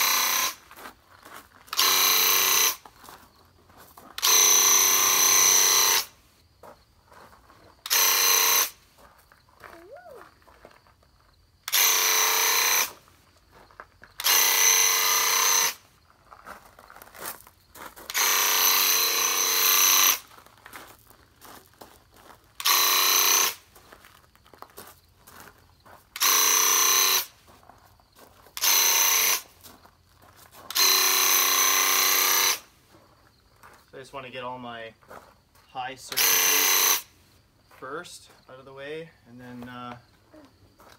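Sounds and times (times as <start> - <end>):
paint sprayer pump buzzing: 0.0 - 0.6, 1.7 - 2.8, 4.2 - 6.1, 7.8 - 8.8, 11.6 - 13.0, 14.2 - 15.8, 18.1 - 20.2, 22.6 - 23.6, 26.2 - 27.3, 28.6 - 29.5, 30.7 - 32.7, 36.1 - 37.1.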